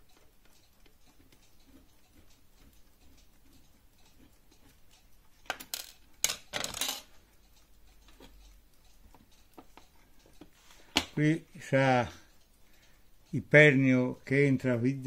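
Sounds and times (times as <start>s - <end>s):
small metal parts clinking: 5.5s - 7.2s.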